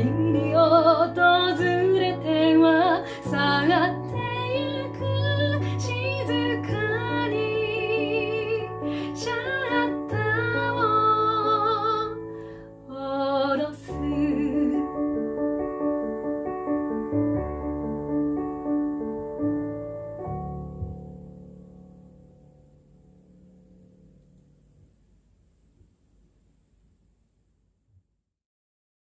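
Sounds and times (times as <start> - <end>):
woman singing a ballad: 0.0 - 15.4
piano accompaniment: 0.0 - 25.7.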